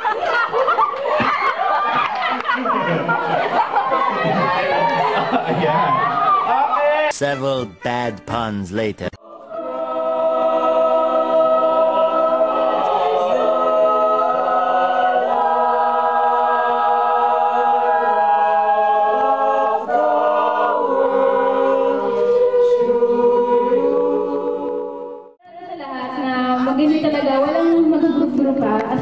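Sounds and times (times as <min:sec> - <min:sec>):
choir singing slow chords: 0:09.2 - 0:25.4.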